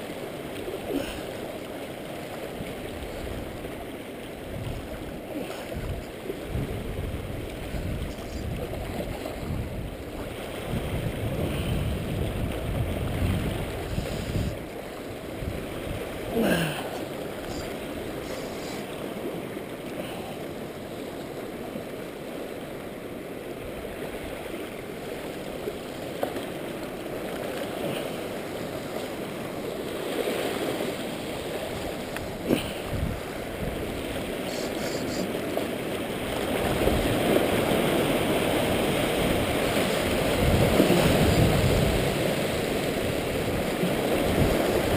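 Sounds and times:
seawater splashing over rocks: 0.0s - 44.9s
wind rumble on microphone: 4.4s - 16.4s, 31.7s - 35.2s, 36.2s - 44.9s.

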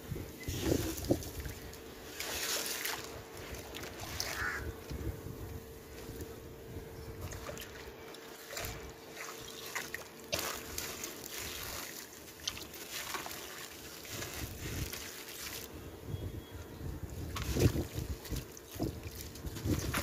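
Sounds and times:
hands sloshing wet sand: 0.4s - 4.6s, 7.2s - 15.7s, 17.2s - 20.0s
water splashes: 0.6s - 4.7s, 7.2s - 15.7s, 17.2s - 20.0s.

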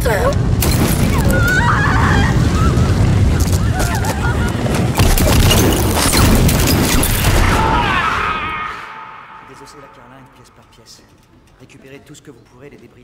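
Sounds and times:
fire roaring and crackling: 0.0s - 9.7s
people shouting and screaming: 1.0s - 5.0s, 7.2s - 9.9s
loud crash: 4.7s - 10.7s.

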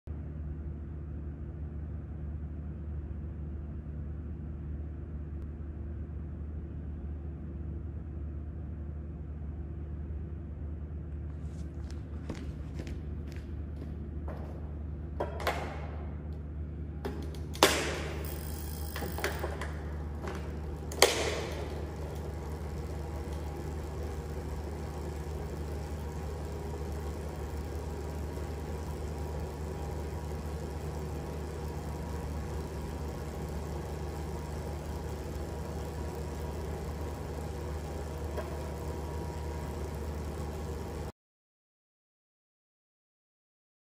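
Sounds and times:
bike trainer and chain whirring: 11.4s - 41.1s
shoes snapping into pedals: 17.0s - 38.9s.

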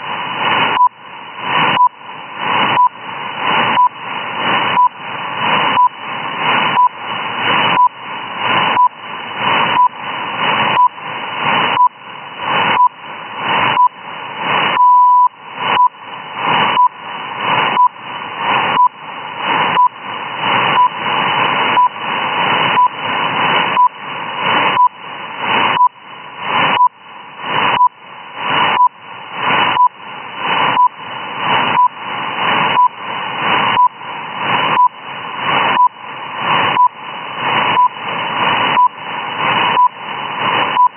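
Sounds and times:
radio static: 0.0s - 40.9s
short time signal beeps: 7.8s - 8.0s, 14.8s - 16.0s.

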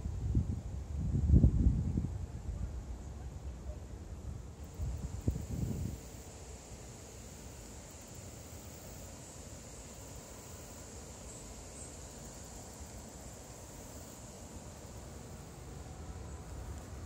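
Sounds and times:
thin high-pitched hiss: 4.5s - 17.0s.

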